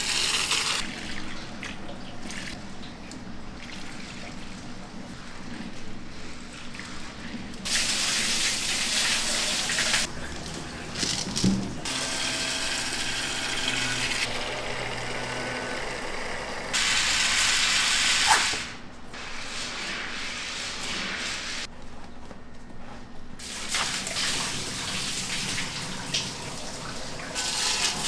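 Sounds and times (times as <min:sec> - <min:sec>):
water running: 0:00.0 - 0:13.8, 0:23.4 - 0:28.0
faint machine hum: 0:00.0 - 0:17.8, 0:18.6 - 0:28.0.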